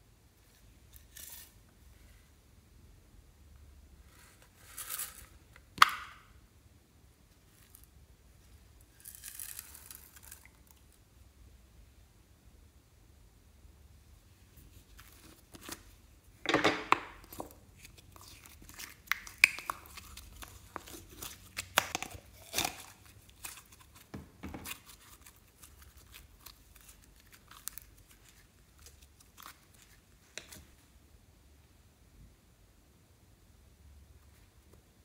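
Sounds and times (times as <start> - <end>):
slime squelching and crackling: 17.2 - 30.8.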